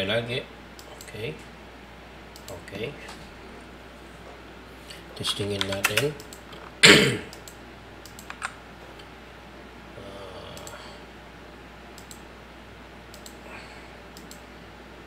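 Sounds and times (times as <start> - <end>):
keyboard and mouse clicks: 5.3 - 6.7, 7.3 - 8.6, 12.0 - 12.2, 13.1 - 13.4, 14.2 - 14.4.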